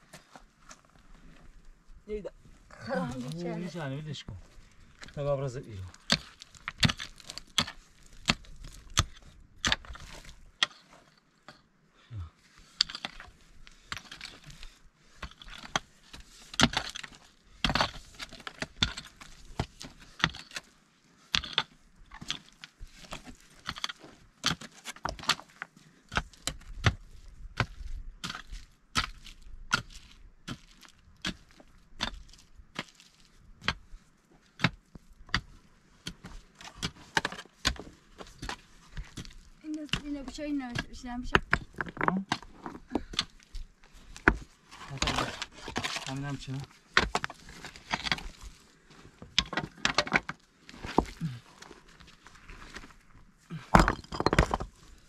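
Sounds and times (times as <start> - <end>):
gravel being scraped: 42.1 - 48.9, 50.6 - 53.7.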